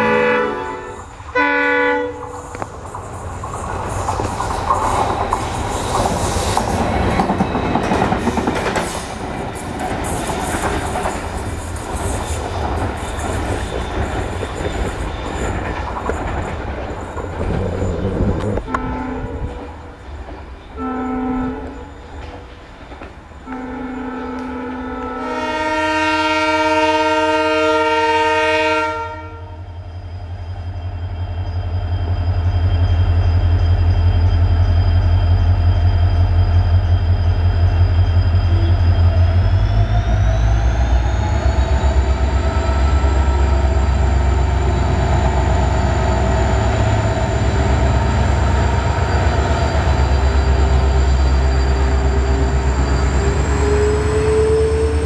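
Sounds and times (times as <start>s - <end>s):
diesel locomotive horn: 0.0s - 2.6s, 17.4s - 20.0s, 20.8s - 22.1s, 23.4s - 29.7s
diesel locomotive engine rumble: 0.0s - 55.0s.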